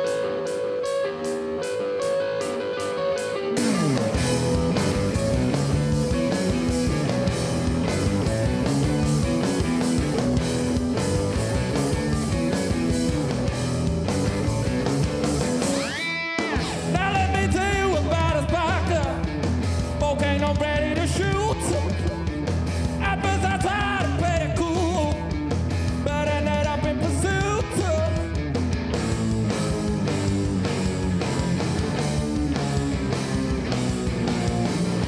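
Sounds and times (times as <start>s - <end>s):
bass guitar: 0.0s - 35.0s
drums: 0.0s - 35.0s
electric guitars: 0.0s - 35.0s
man singing: 16.8s - 28.4s.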